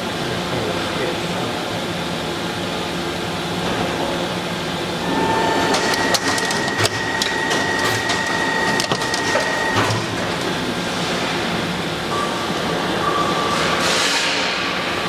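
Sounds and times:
high ringing tone: 0:05.0 - 0:10.2.

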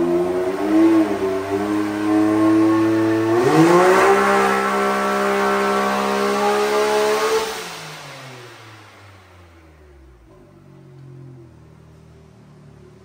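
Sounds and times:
engine revving at full throttle: 0:00.0 - 0:09.6.

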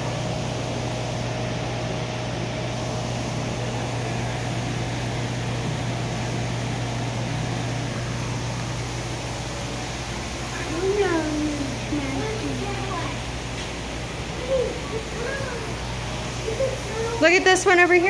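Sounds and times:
mechanical hum with low drone: 0:00.0 - 0:18.0
rushing hiss: 0:08.4 - 0:18.0.

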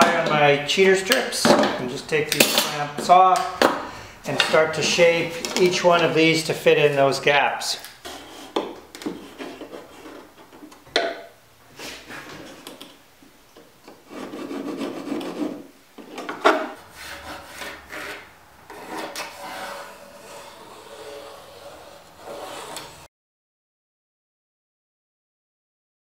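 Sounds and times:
wood strips scraping on planks: 0:08.0 - 0:10.6, 0:14.0 - 0:23.1.

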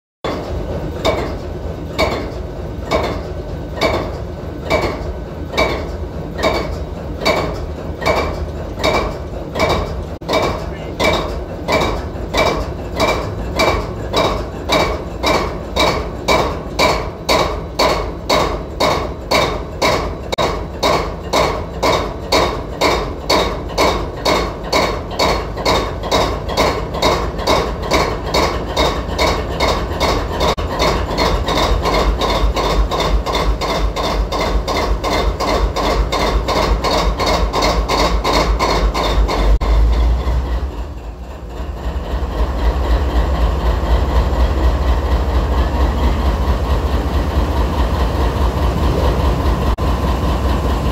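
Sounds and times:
diesel engine low rumble: 0:00.3 - 0:50.9
engine clanking knock: 0:00.3 - 0:50.9.

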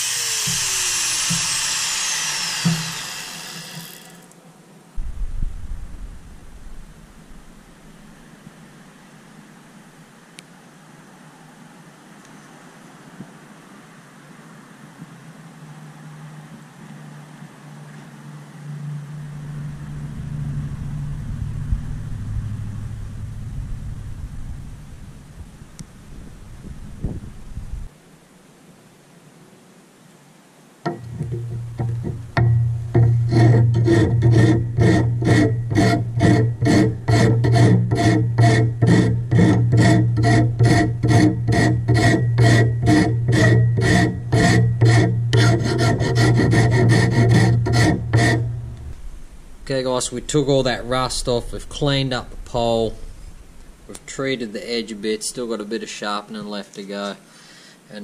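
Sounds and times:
hand file rasping on wood: 0:00.0 - 0:04.3, 0:33.0 - 0:48.6
steady low hum: 0:00.0 - 0:10.2, 0:18.1 - 0:27.9, 0:30.9 - 0:55.8
low engine-like hum: 0:15.6 - 0:27.9.

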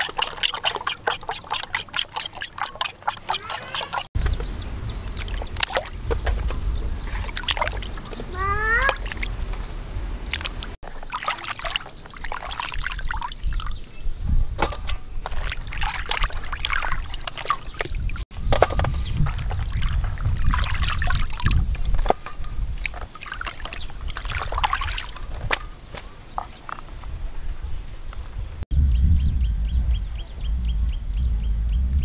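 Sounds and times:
water sloshing and splashing: 0:00.0 - 0:27.0
low rumble: 0:28.7 - 0:32.0.

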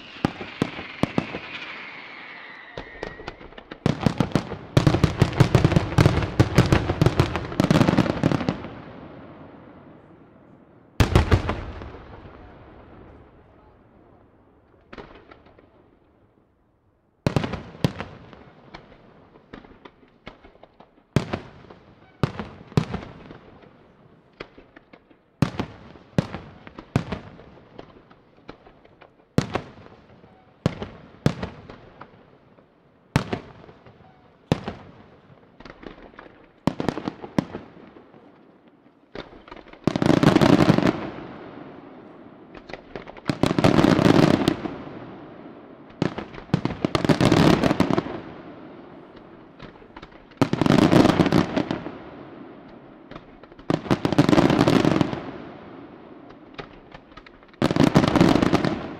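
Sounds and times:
firework shells bursting: 0:00.0 - 0:04.3
rapid firework bursting: 0:00.0 - 0:08.2.

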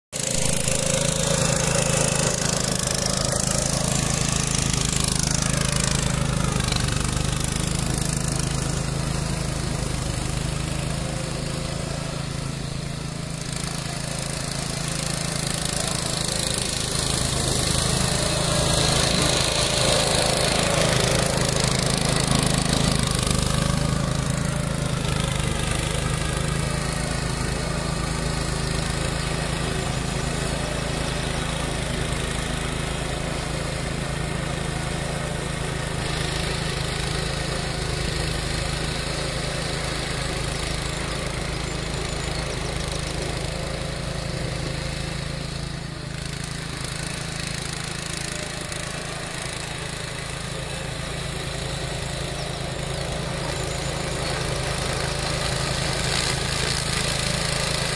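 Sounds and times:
mulcher cutting grass: 0:00.1 - 0:57.9
tractor engine running under load: 0:00.2 - 0:57.9.

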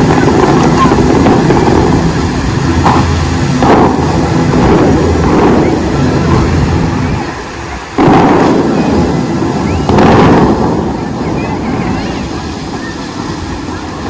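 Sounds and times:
rushing and falling water rumble: 0:00.0 - 0:14.0
water jets firing with booming bursts: 0:00.0 - 0:14.0.

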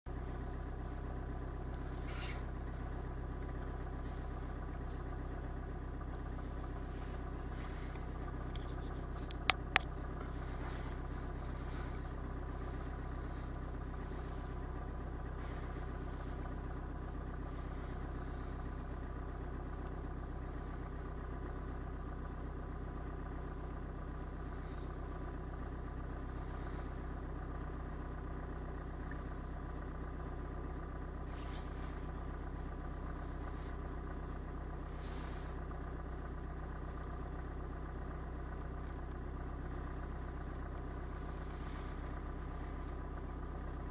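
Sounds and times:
car engine idling: 0:00.1 - 0:43.9
sharp clicks: 0:08.5 - 0:09.9.

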